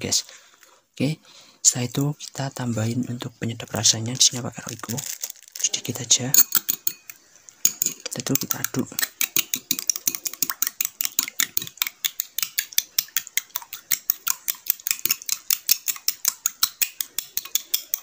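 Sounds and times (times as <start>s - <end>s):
metal spoon beating egg in glass bowl: 5.7s - 18.0s.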